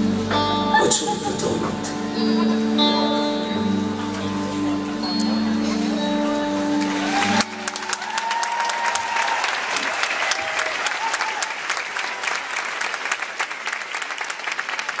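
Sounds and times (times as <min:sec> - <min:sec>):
crowd applauding: 0:05.1 - 0:15.0
crowd cheering: 0:05.5 - 0:15.0.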